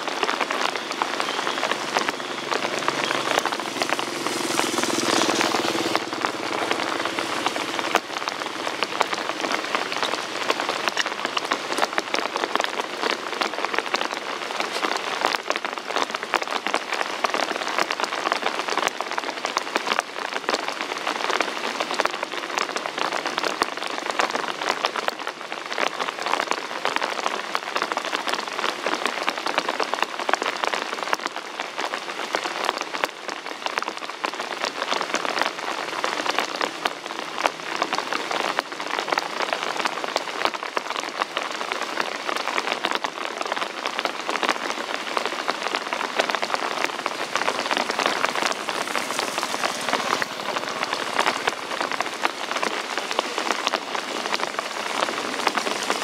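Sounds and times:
rain falling: 0.0s - 56.0s.

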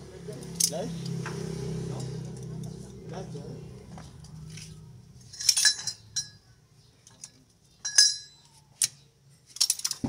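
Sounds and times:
metal tools clinking: 4.2s - 6.4s, 7.1s - 8.5s.

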